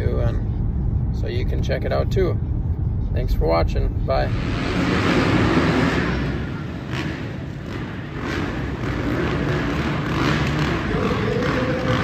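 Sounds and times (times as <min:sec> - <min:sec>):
dirt bike engines running: 0:04.3 - 0:12.0.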